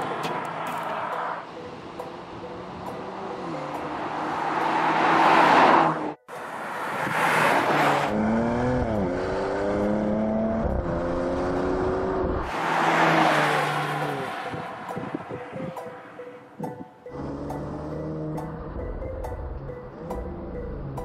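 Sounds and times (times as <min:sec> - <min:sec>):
car engine accelerating: 0:07.0 - 0:15.2, 0:17.0 - 0:21.0.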